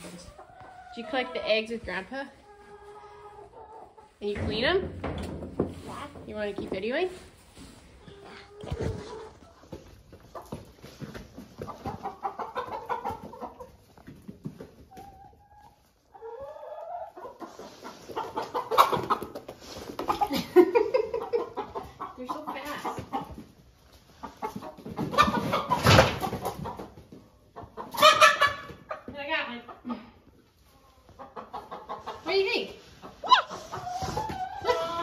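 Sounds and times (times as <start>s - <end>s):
hens clucking and squawking: 0.0s - 35.0s.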